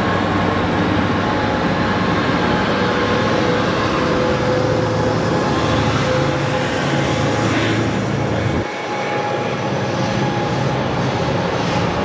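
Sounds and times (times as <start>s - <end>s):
train engine drone with whine: 0.0s - 12.0s.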